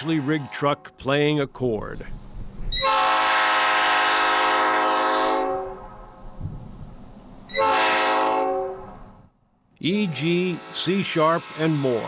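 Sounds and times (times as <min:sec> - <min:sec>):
air horn chord blasts: 0:02.8 - 0:05.9, 0:07.5 - 0:08.9, 0:10.2 - 0:11.8.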